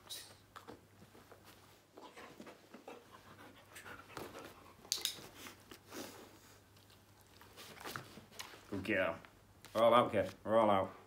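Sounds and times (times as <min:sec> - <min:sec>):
dog panting: 0:02.0 - 0:07.0.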